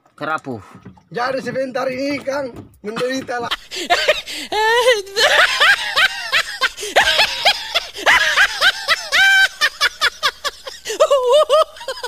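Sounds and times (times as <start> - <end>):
high-pitched laughter: 3.6 - 12.0.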